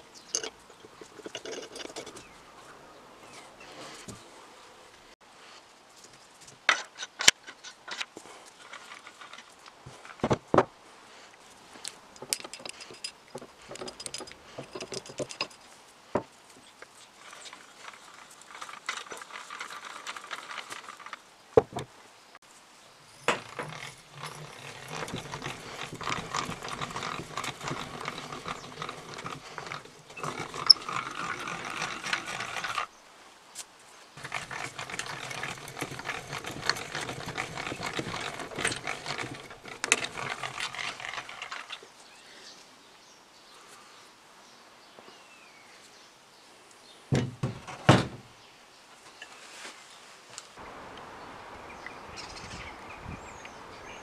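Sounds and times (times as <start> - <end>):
hand drill cutting into wood: 23.4 - 32.9.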